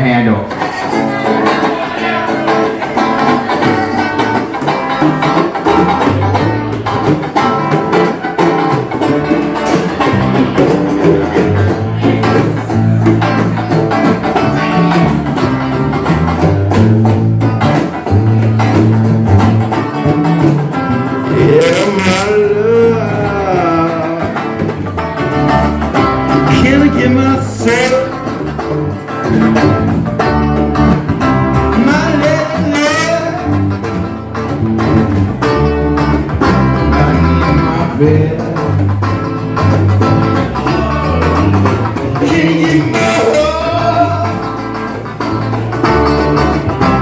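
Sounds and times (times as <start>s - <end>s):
person singing: 0.0s - 15.4s, 21.1s - 25.0s, 26.3s - 29.2s, 31.7s - 33.7s, 37.1s - 39.2s, 40.2s - 44.9s
bass line: 0.0s - 47.0s
electric guitar: 0.0s - 47.0s.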